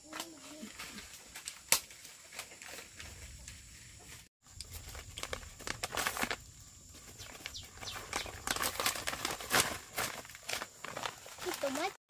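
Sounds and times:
plastic wrapper crinkling: 4.6s - 6.4s, 7.2s - 12.0s.

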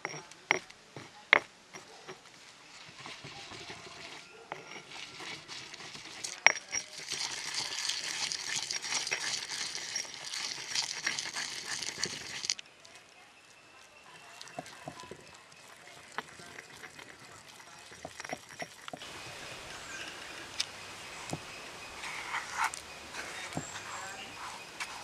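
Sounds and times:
pestle grinding in stone mortar: 0.0s - 12.6s, 13.9s - 25.0s.

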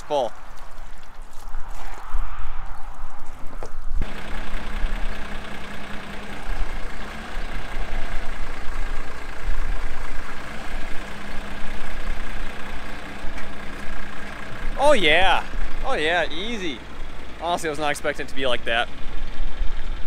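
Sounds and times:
wind rumble on microphone: 0.3s - 4.0s
tractor diesel engine idling: 4.0s - 20.0s.

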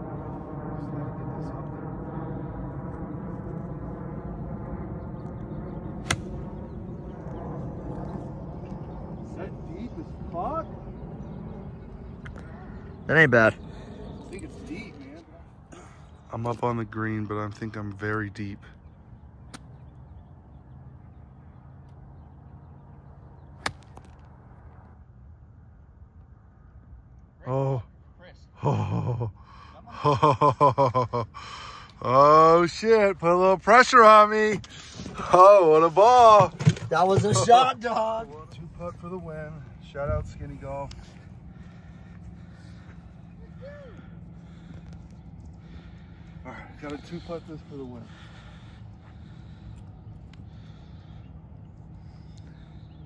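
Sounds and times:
outdoor background noise: 0.0s - 53.0s
golf club striking ball: 6.0s - 6.5s, 23.6s - 24.2s.

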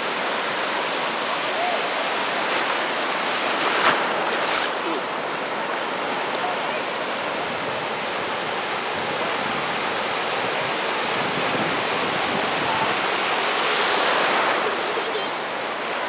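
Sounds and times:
surf washing through shallow water: 0.0s - 16.0s
small wave breaking: 1.5s - 5.4s.

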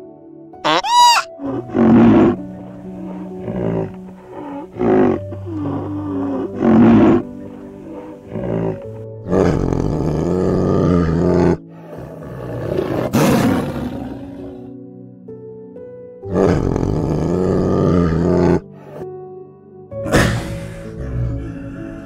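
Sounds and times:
soft background music: 0.0s - 22.0s
big cat roaring: 0.7s - 14.7s, 16.3s - 18.6s, 20.1s - 22.0s.

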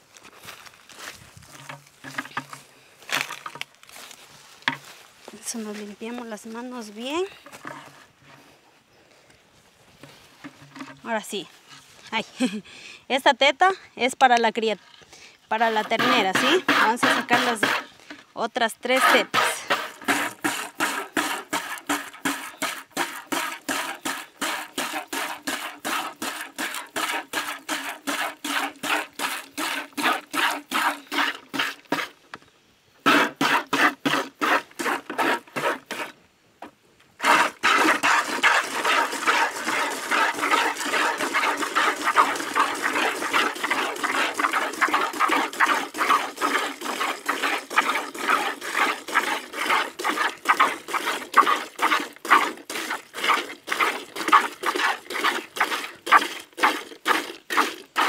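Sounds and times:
milk squirting into container: 19.1s - 32.1s, 37.2s - 58.0s.

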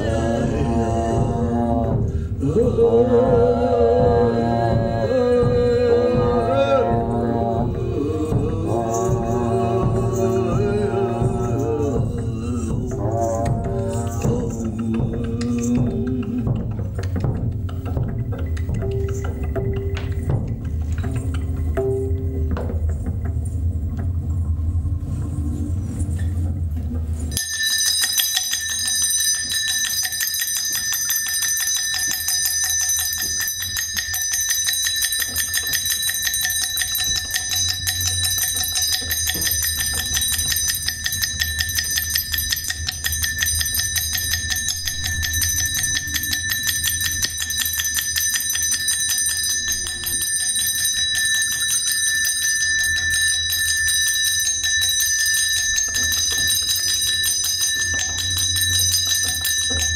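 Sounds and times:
low hum: 0.0s - 27.4s
bell ringing rapidly: 27.3s - 59.9s.

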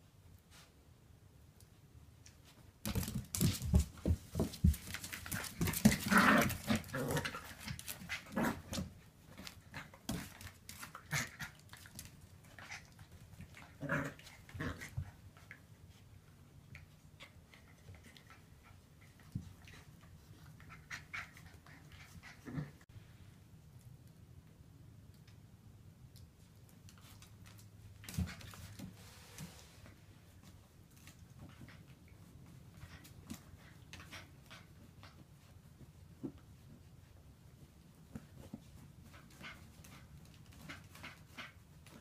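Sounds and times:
puppies scuffling and thumping: 2.2s - 22.4s, 26.4s - 42.0s.

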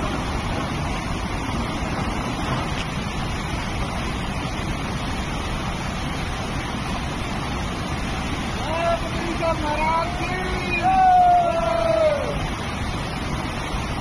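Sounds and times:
water rushing over boulders: 0.0s - 14.0s.

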